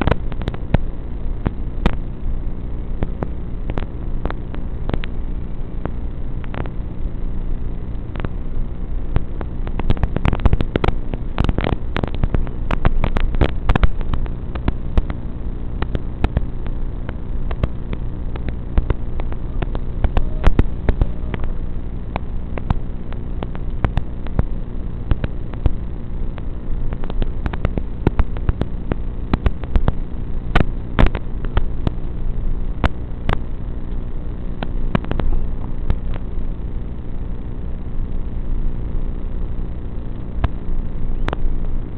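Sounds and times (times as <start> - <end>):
crackles and clicks: 0.0 - 41.9
steady electronic buzz: 0.0 - 41.9.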